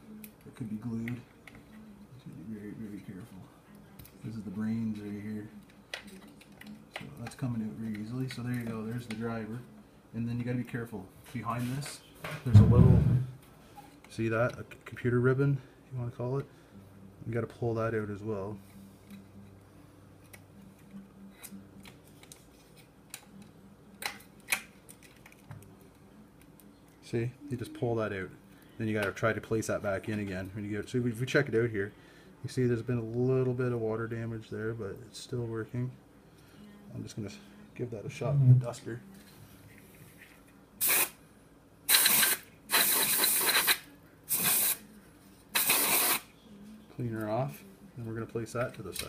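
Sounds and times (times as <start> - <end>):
compressed air duster hissing: 40.8 - 41.2, 41.9 - 44.9, 45.5 - 46.3.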